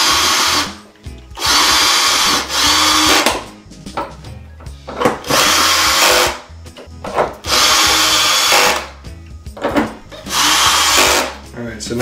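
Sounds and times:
cordless drill running: 0:00.0 - 0:00.8, 0:01.4 - 0:03.3, 0:05.3 - 0:06.4, 0:07.5 - 0:08.9, 0:10.3 - 0:11.4.

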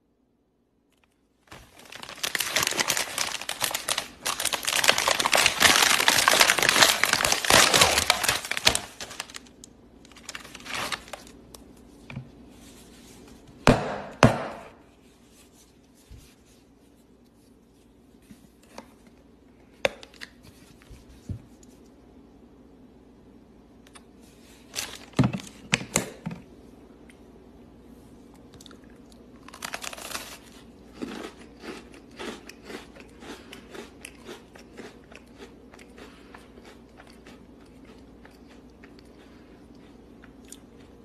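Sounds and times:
packaging crinkling: 0:00.9 - 0:11.5, 0:29.5 - 0:31.2.

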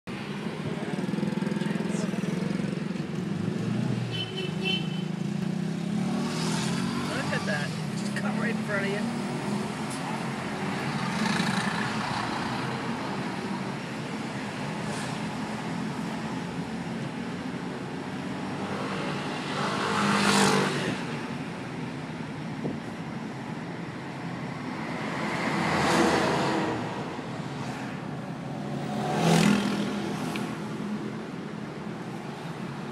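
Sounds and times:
car engine and road noise: 0:00.0 - 0:32.9
motor scooter passing: 0:28.9 - 0:30.5.

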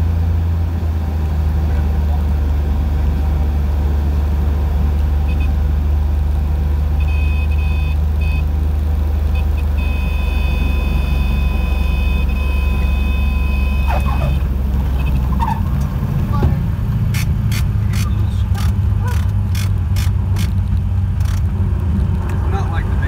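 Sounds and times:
aircraft engine droning: 0:00.0 - 0:23.0
stall warning horn: 0:09.4 - 0:14.4.

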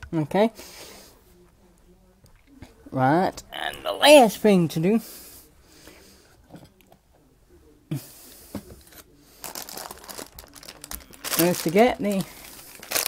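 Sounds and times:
plastic bag crinkling: 0:09.4 - 0:13.0.

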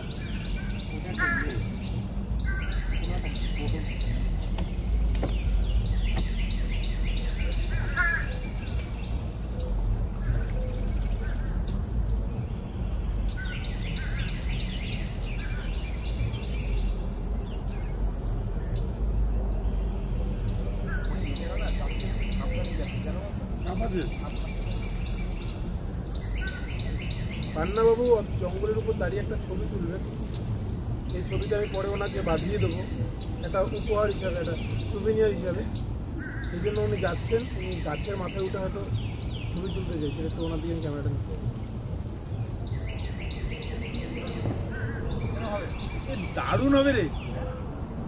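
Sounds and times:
bird chirps: 0:00.0 - 0:19.1, 0:19.7 - 0:41.6, 0:42.4 - 0:47.7
insects whining and trilling: 0:00.0 - 0:48.0.

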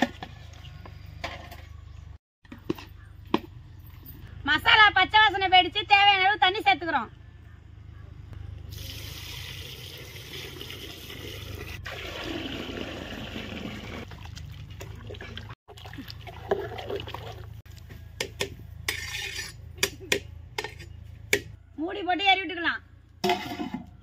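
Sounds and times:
water pouring into pot: 0:08.7 - 0:14.5
pots and utensils clanking: 0:23.2 - 0:24.0.

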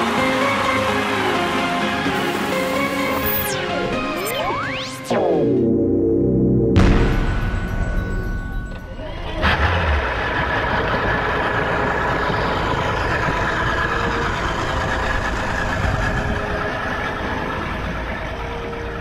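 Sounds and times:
outboard motor starting and idling: 0:08.8 - 0:19.0
exhaust bubbling water: 0:09.2 - 0:19.0.

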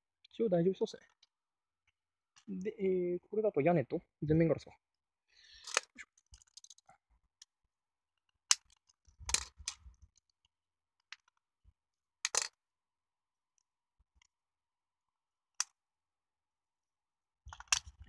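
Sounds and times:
plastic clicks: 0:05.6 - 0:07.5, 0:08.5 - 0:09.9, 0:12.3 - 0:12.6, 0:17.5 - 0:18.0.

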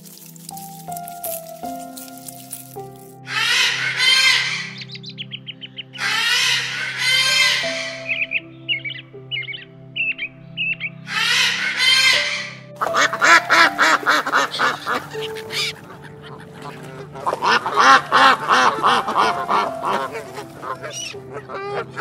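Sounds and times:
quiet background music: 0:00.0 - 0:22.0
ducks or geese calling: 0:03.3 - 0:08.4, 0:11.1 - 0:22.0.

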